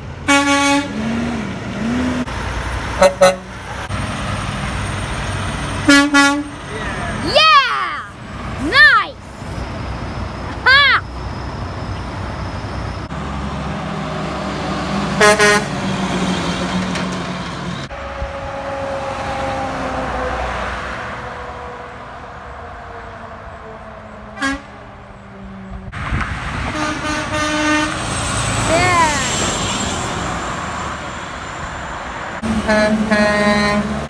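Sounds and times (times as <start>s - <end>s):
trucks passing: 0.0s - 34.0s
truck horn: 0.2s - 2.2s, 2.9s - 3.8s, 5.8s - 6.7s, 15.1s - 15.8s, 23.7s - 24.9s, 26.6s - 28.1s, 32.4s - 34.0s.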